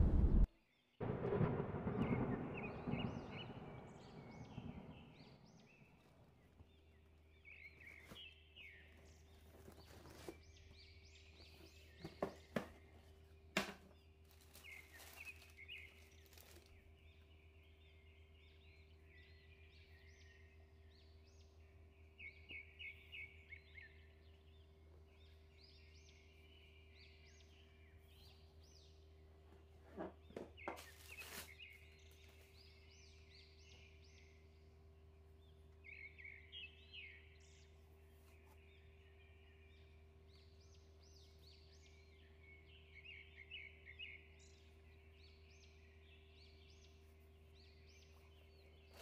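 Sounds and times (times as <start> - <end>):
deep boom: 0.0 - 5.8
low steady hum: 0.0 - 10.0
faint birds chirping: 0.0 - 49.0.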